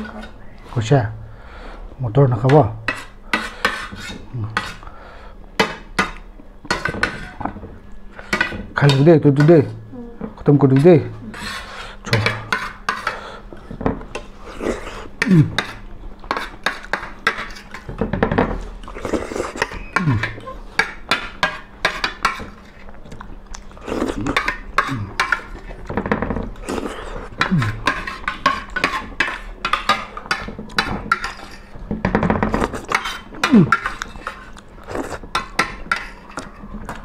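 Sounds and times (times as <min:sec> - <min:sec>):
cutlery clinking on plates: 0:05.6 - 0:07.6, 0:27.3 - 0:34.6.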